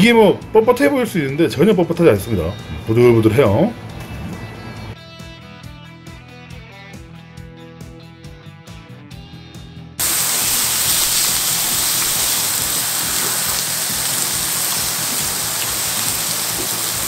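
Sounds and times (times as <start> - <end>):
background music: 0.0 - 17.0
oil sizzling in a frying pan: 10.0 - 17.0.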